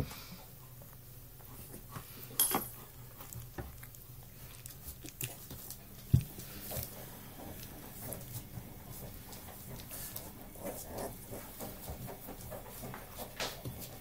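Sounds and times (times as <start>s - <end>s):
puppies scuffing on bedding: 3.1s - 14.0s.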